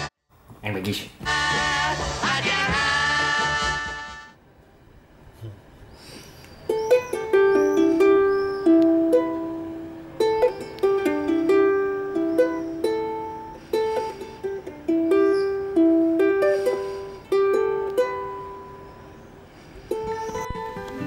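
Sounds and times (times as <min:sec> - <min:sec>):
ukulele playing: 0:06.7 - 0:19.1, 0:19.9 - 0:21.0.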